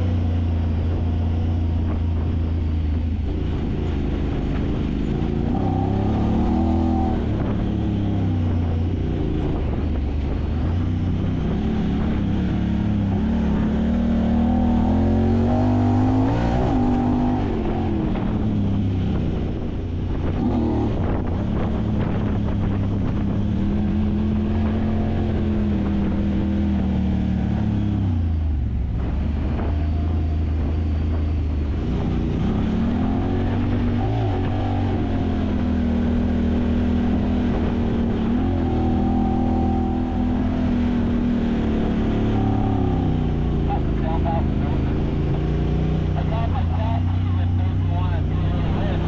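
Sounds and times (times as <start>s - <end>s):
utility vehicle engine running: 0.0s - 49.0s.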